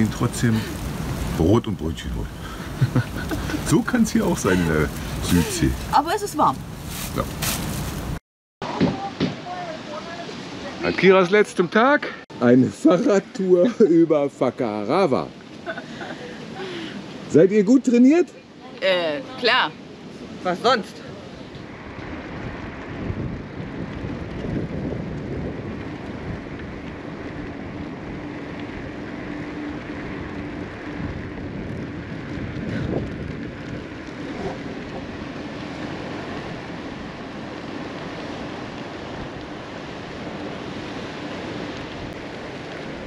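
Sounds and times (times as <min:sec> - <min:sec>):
wind rushing over microphone: 0:00.0 - 0:09.1, 0:18.8 - 0:43.0.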